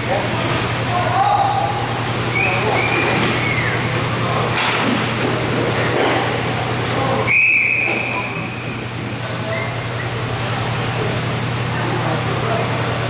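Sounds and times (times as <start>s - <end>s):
referee's whistle blast: 7.3s - 8.5s.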